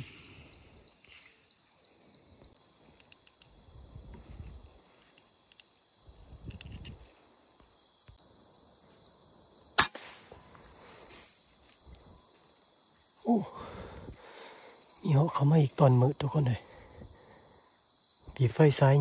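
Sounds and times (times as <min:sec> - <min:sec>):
insects trilling: 0:00.0 - 0:19.0
rifle shot: 0:09.8 - 0:10.5.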